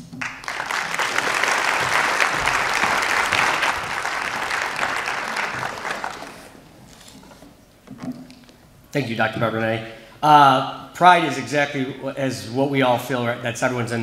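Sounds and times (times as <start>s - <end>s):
audience applauding: 0.0s - 7.1s.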